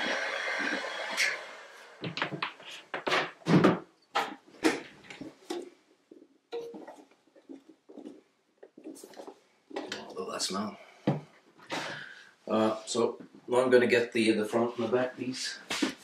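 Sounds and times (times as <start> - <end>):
heat gun blowing: 0.0 - 2.0.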